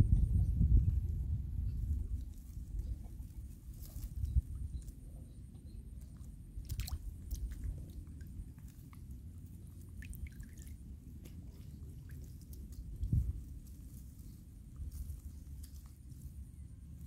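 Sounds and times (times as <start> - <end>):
steady low rumble: 0.0 - 17.0
clicks and rustles in shrub: 2.1 - 5.0, 11.1 - 16.4
wet squishes in mud: 6.0 - 16.2.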